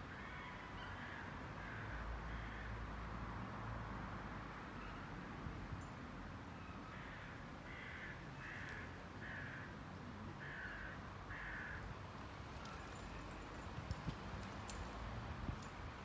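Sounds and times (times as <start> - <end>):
crow cawing: 0.2 - 2.8, 6.9 - 9.8, 10.4 - 11.9.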